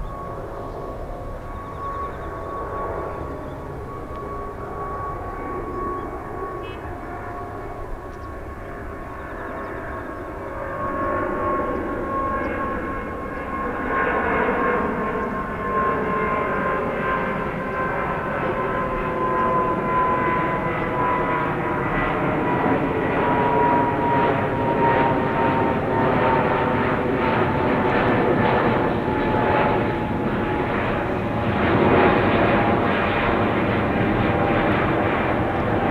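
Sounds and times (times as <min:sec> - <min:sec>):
jet airliner roar with fan whine: 0:00.0 - 0:35.9.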